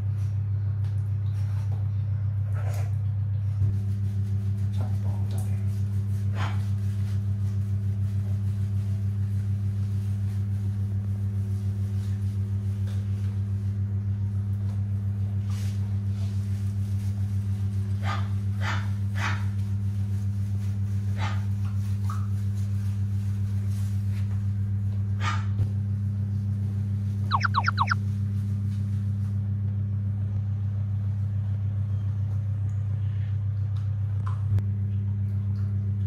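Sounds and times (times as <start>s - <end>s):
puppy yipping and whimpering: 27.3s - 28.0s.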